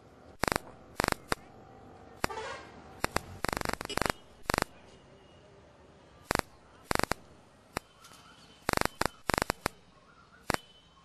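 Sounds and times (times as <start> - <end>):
sharp dry clicks: 0.4 - 1.5, 2.2 - 2.4, 3.0 - 4.8, 6.3 - 7.9, 8.6 - 9.8, 10.4 - 10.7.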